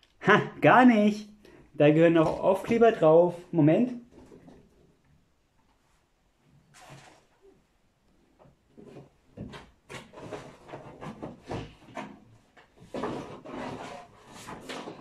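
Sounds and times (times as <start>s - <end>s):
rummaging knocks and rustles: 8.7s - 15.0s.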